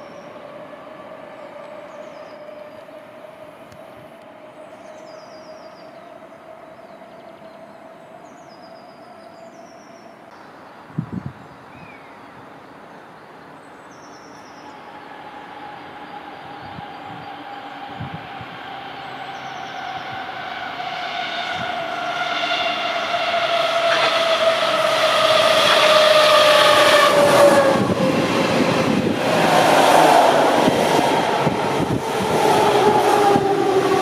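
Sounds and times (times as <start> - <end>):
electric train whine: 0.0 - 10.3, 14.6 - 34.0
train wheel noise rushing: 19.8 - 34.0.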